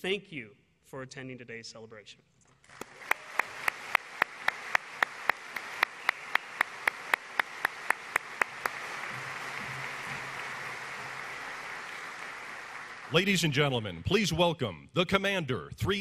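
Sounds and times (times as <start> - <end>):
close hand claps: 2.6 - 13.5
audience applauding: 2.6 - 14.2.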